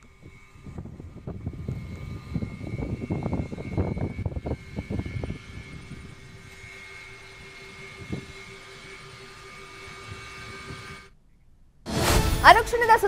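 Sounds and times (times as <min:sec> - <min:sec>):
low gusty rumble: 0:00.0 - 0:09.2
motor hum with high whine: 0:00.0 - 0:11.3.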